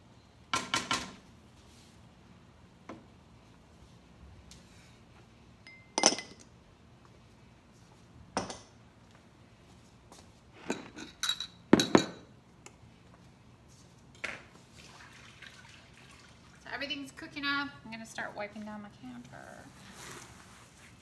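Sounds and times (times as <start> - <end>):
glassware and dishes clinking: 5.6 - 6.4, 10.6 - 12.3.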